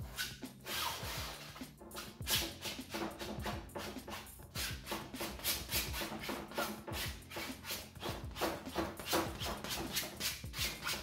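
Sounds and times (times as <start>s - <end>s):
palette knife scraping canvas: 0.2s - 4.3s, 4.9s - 11.0s.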